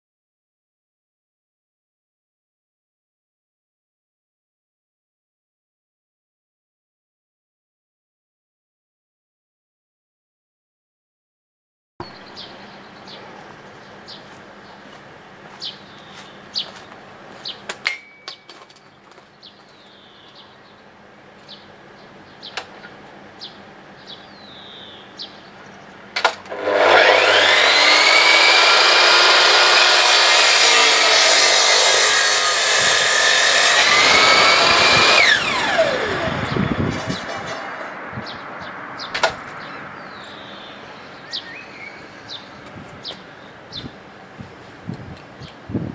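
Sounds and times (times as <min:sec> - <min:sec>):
bird chirps: 0:12.0 - 0:14.9, 0:15.6 - 0:26.0, 0:38.2 - 0:44.0
electric mitre saw cutting wood: 0:26.2 - 0:38.0.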